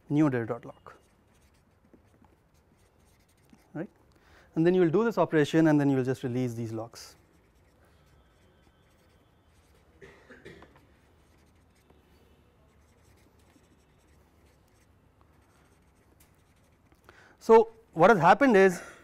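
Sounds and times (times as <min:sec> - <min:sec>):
marker pen scratching on paper: 0:00.4 - 0:04.0, 0:06.2 - 0:17.0.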